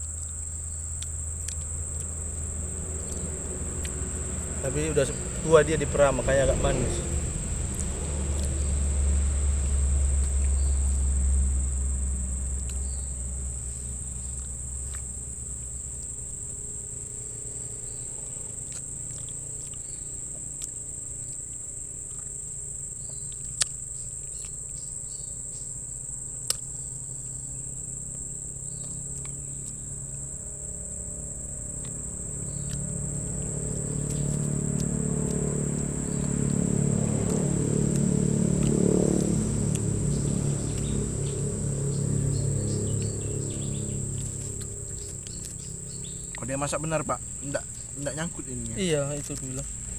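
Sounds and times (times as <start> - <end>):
low rumble: 0.0 - 18.6, 30.4 - 49.9
insects droning: 0.0 - 49.9
low hum: 0.0 - 49.9.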